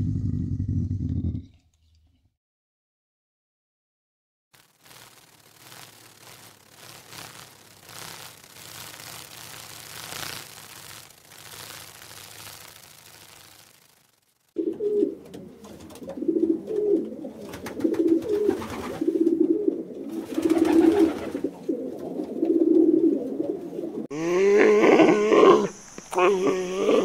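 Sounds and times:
pigeon cooing: 14.6 - 27.0
high animal call with bending pitch: 24.1 - 27.0.

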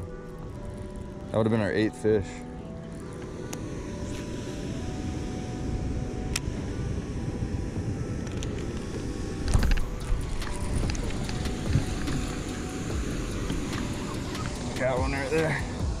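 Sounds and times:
wind buffeting microphone: 0.0 - 16.0
fishing rod and reel clicks: 6.3 - 6.6, 8.2 - 15.6.

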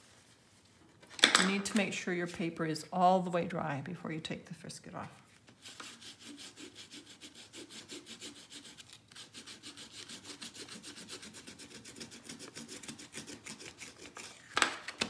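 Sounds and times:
eraser scrubbing paper: 5.5 - 14.4.

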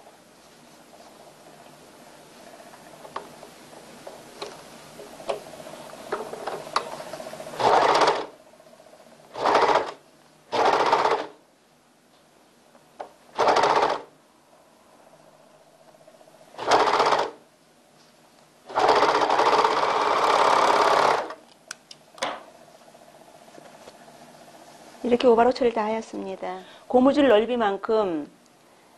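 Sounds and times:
overlock sewing machine running: 6.5 - 8.4, 9.3 - 11.4, 13.3 - 14.1, 16.5 - 17.4, 18.7 - 21.4.

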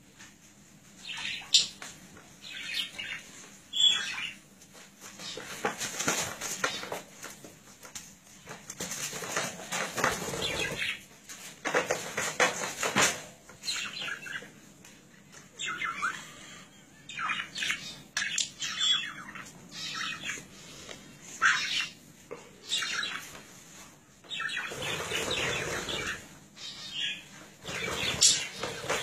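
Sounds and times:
scuffling and fluttering: 4.0 - 14.5, 22.8 - 29.0
budgerigar chirping and squawking: 17.1 - 20.5, 21.4 - 22.0, 24.4 - 29.0.

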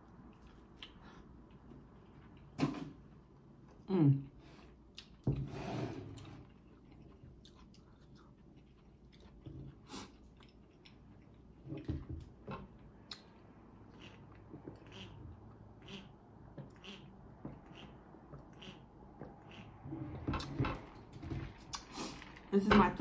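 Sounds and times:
chewing mouth sounds: 6.6 - 11.6, 13.0 - 19.8.

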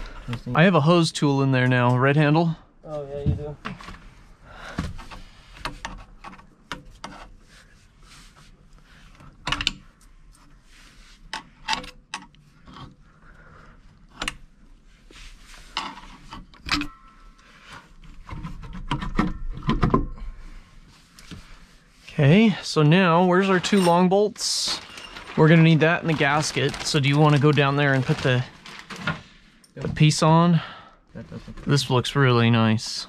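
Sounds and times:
tool scraping and clicking on hose: 5.0 - 13.1, 15.1 - 19.6.

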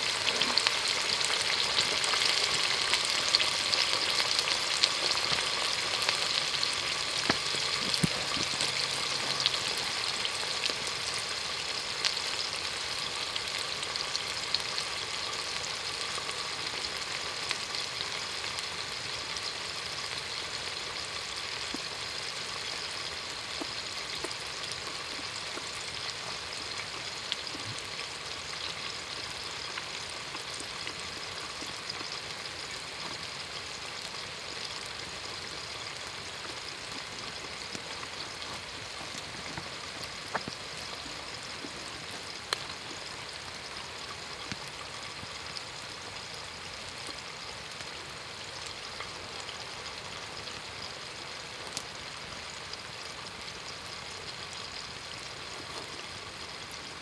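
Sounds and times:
food sizzling in hot oil: 0.0 - 57.0
oil popping: 7.2 - 9.4.

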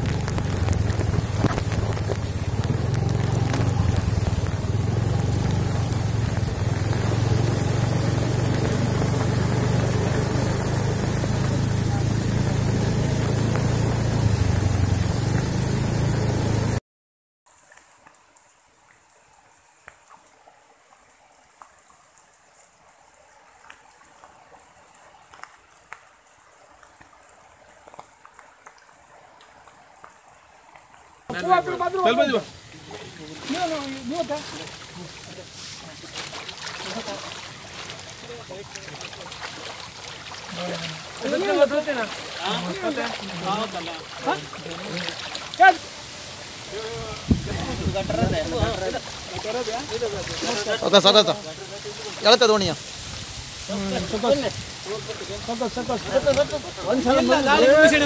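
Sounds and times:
heavy rain: 0.0 - 16.8, 30.9 - 58.0
rushing floodwater: 0.0 - 16.8, 17.6 - 58.0
light ticks: 23.6 - 30.9.

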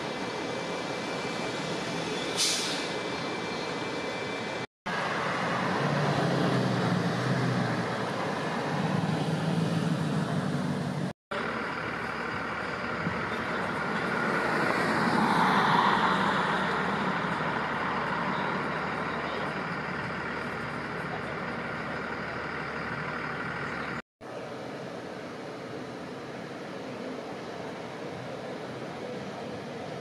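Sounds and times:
passing vehicles and engine hum: 0.0 - 30.0
vehicle passing by: 5.0 - 11.1, 13.8 - 19.2.

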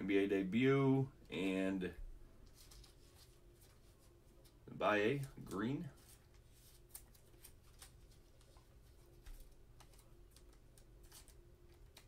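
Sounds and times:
low room hum: 0.0 - 12.0
cards and plastic sleeves clicking: 4.4 - 12.0.

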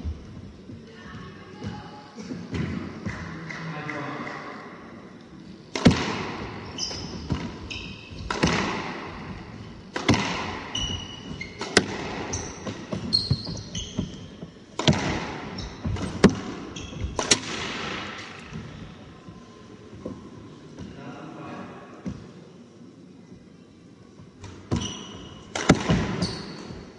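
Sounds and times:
squash ball hitting racket and walls: 2.5 - 3.5, 5.6 - 19.0, 24.4 - 26.9
shoes squeaking on wooden floor: 6.6 - 9.8, 10.7 - 14.8, 15.4 - 17.2, 24.7 - 25.4, 26.1 - 26.9.

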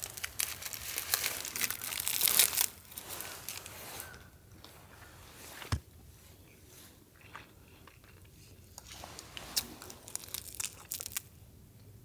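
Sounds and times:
crunching and chewing food: 0.0 - 4.2, 7.1 - 11.4.

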